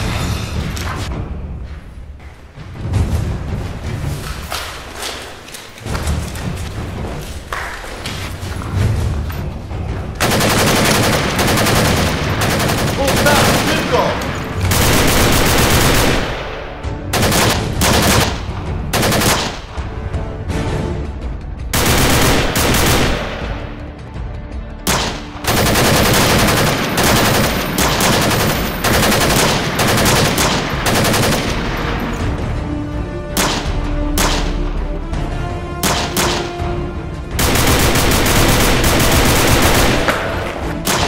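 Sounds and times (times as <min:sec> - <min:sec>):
automatic rifle gunfire: 0:10.2 - 0:16.6, 0:17.2 - 0:18.4, 0:19.0 - 0:19.7, 0:21.8 - 0:23.5, 0:24.9 - 0:31.9, 0:33.4 - 0:34.6, 0:35.8 - 0:36.6, 0:37.4 - 0:41.0.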